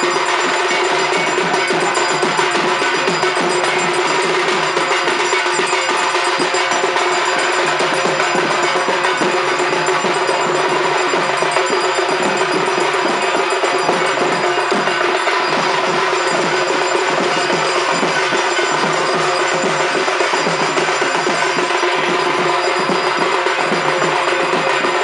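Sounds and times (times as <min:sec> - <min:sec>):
drums beaten fast: 0:00.0 - 0:25.0
metallic bell ringing: 0:00.0 - 0:25.0.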